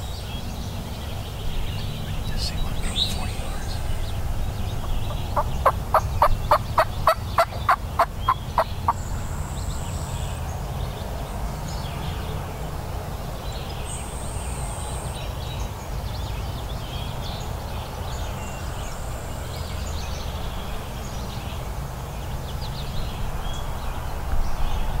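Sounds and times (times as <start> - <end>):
faint songbird chirps: 0.0 - 12.4
steady low rumble: 1.0 - 9.3
wild turkey yelping: 4.7 - 9.0.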